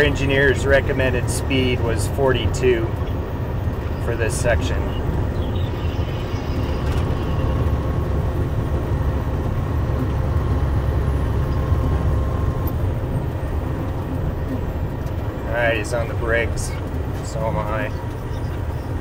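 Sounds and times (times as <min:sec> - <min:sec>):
truck engine and tyres rumbling: 0:00.0 - 0:19.0.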